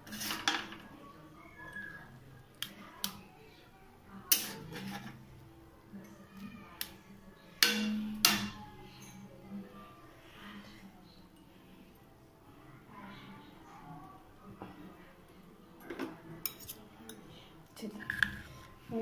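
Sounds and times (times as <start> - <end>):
spatula scraping steel plate: 0.0 - 0.6, 4.3 - 5.2
metal spatula clinking on steel: 4.3 - 5.1, 7.6 - 9.3, 16.4 - 17.3.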